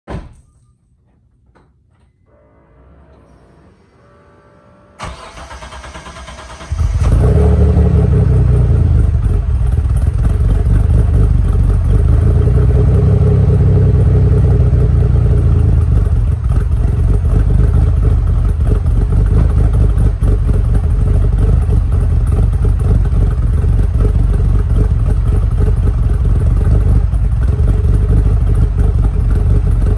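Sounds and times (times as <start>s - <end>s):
car engine idling: 2.8s - 29.9s
starter motor cranking: 5.0s - 7.2s.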